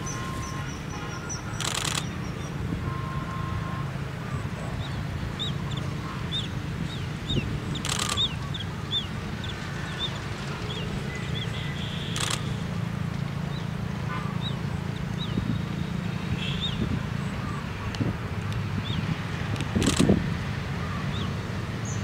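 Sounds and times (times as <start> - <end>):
sharp clicks: 1.6 - 2.2, 7.8 - 8.4, 12.1 - 12.6, 19.5 - 20.2
small bird chirping: 4.8 - 10.1.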